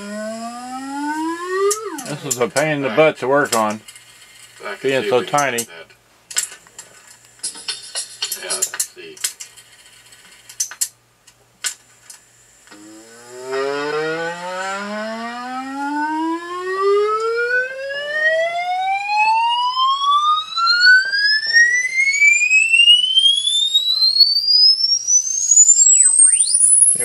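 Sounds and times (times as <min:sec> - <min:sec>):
rising electronic test tone: 0:00.0 - 0:02.2, 0:12.8 - 0:27.0.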